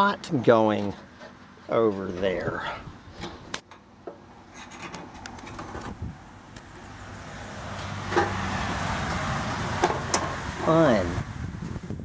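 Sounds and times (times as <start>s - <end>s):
vehicle engine hum: 4.0s - 12.0s.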